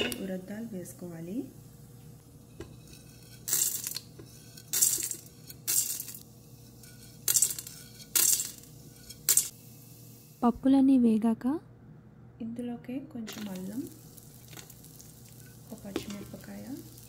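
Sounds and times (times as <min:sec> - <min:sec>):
lentils sizzling in hot oil: 0:00.1 - 0:10.5, 0:13.2 - 0:17.0
mustard seeds crackling in oil: 0:00.4 - 0:09.6, 0:13.2 - 0:17.0.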